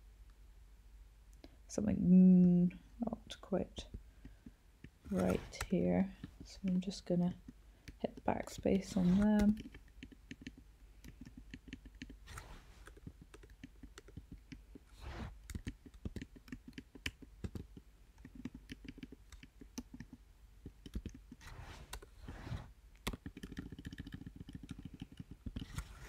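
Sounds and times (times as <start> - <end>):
keyboard and mouse clicking: 7.8 - 22.1, 23.0 - 26.0.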